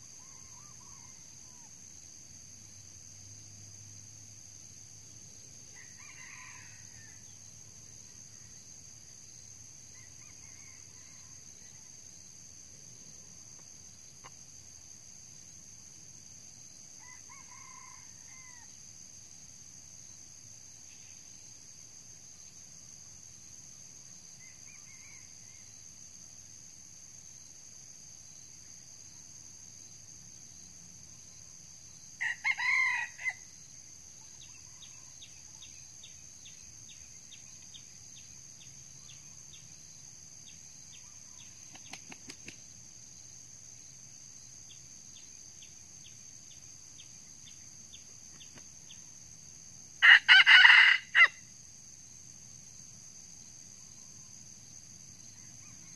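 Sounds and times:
high insect drone: 0:00.0 - 0:55.9
rooster crowing: 0:05.8 - 0:07.2, 0:09.9 - 0:11.4, 0:17.0 - 0:18.8, 0:32.2 - 0:33.4, 0:50.0 - 0:51.4.

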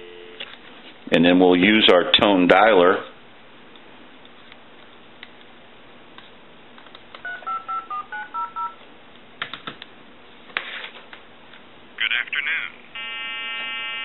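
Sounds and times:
touch-tone dialer beeping: 0:07.2 - 0:08.8.

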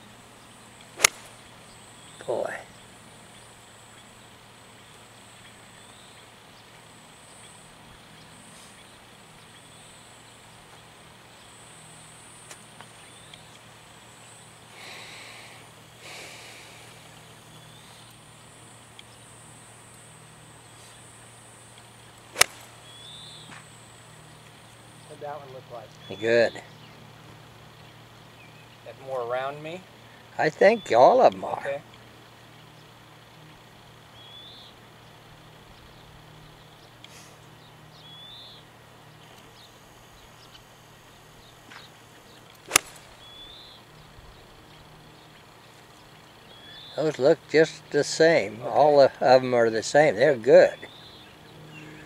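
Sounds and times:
faint background hum: 0:00.0 - 0:52.0
bird chirping: 0:00.3 - 0:11.6, 0:12.8 - 0:15.4, 0:16.1 - 0:19.4, 0:22.0 - 0:29.2, 0:34.1 - 0:47.2, 0:50.2 - 0:52.0
golf club striking ball: 0:01.0 - 0:01.4, 0:22.3 - 0:23.6, 0:42.6 - 0:43.4.

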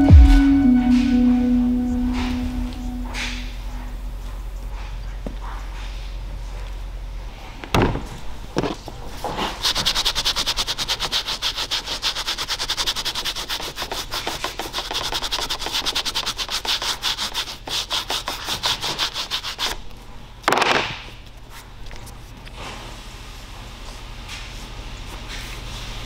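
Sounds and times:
plastic brush scrubbing a pad: 0:09.3 - 0:19.8.

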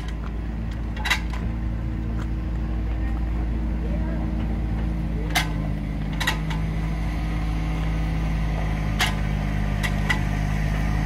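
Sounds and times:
sharp metallic clanks: 0:00.0 - 0:01.5, 0:05.2 - 0:06.8, 0:08.9 - 0:10.4
engine drone: 0:00.0 - 0:11.0.

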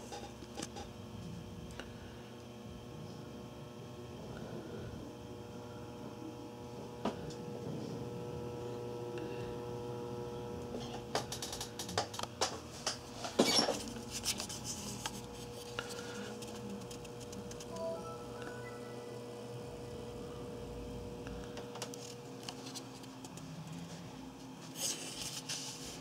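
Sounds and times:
computer fans humming: 0:00.0 - 0:26.0
faint whine: 0:13.2 - 0:24.8.

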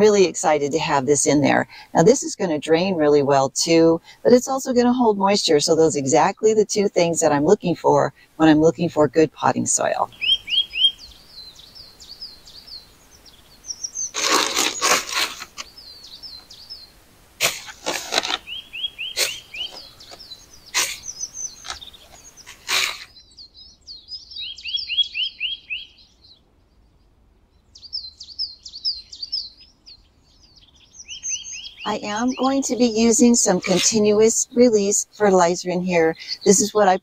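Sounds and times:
small songbirds chirping: 0:00.0 - 0:37.0
rustling and scraping: 0:14.1 - 0:15.7, 0:17.4 - 0:18.5, 0:33.6 - 0:34.1.

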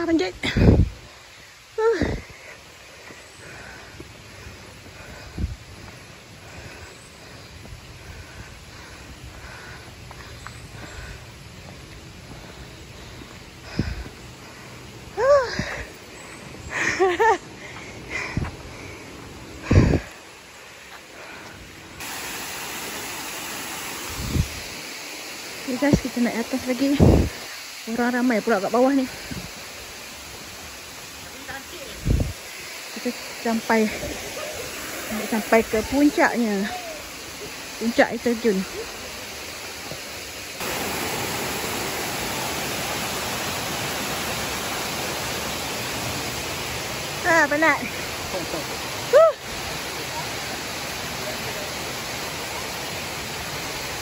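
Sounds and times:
waterfall rushing: 0:19.5 - 0:54.0.

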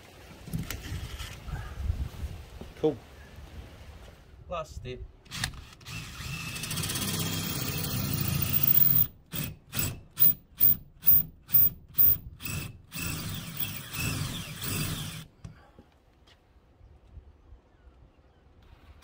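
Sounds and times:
cordless drill running: 0:05.3 - 0:15.3.

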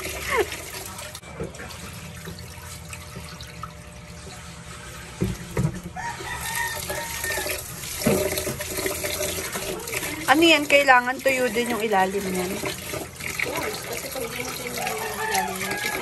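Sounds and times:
tap water running: 0:00.0 - 0:16.0
rooster crowing: 0:06.0 - 0:07.7, 0:14.8 - 0:16.0.

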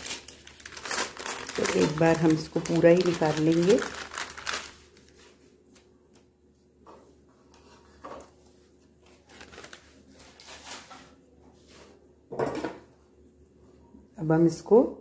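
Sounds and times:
paper rustling and crinkling: 0:00.0 - 0:06.3, 0:07.4 - 0:12.0
soft handling sounds: 0:04.9 - 0:12.1.

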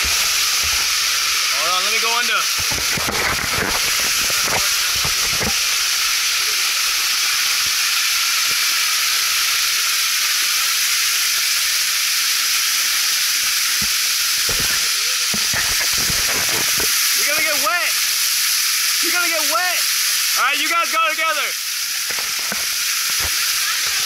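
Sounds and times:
waterfall spray hissing: 0:00.0 - 0:24.0.

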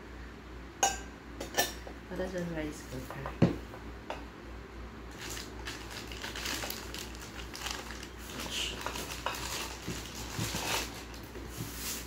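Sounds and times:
plastic bag crinkling: 0:05.1 - 0:12.0.

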